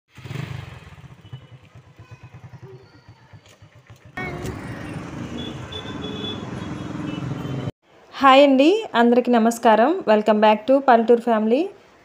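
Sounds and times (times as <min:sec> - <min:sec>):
motorcycle engine running: 0:00.1 - 0:07.6
traffic and road noise: 0:00.1 - 0:08.2.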